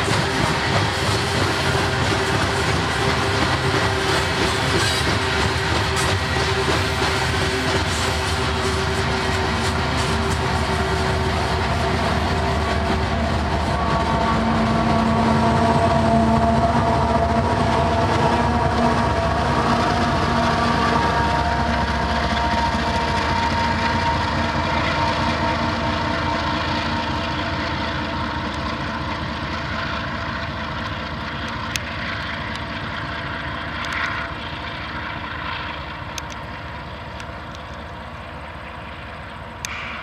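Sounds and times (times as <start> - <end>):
diesel locomotive engine drone: 0.0 - 40.0.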